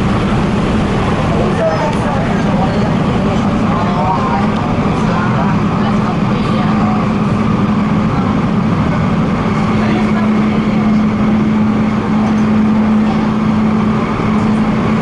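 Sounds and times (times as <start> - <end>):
steady low hum: 0.0 - 15.0
train wheels rumbling on rails: 0.0 - 15.0.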